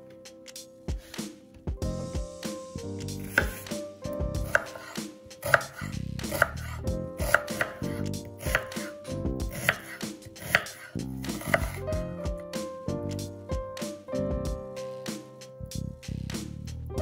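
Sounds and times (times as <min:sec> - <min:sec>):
knife slicing onion: 0:03.0 - 0:03.8, 0:04.4 - 0:11.9
knife knocking on wooden board: 0:03.2 - 0:03.6, 0:04.3 - 0:06.6, 0:07.2 - 0:07.8, 0:08.4 - 0:11.8.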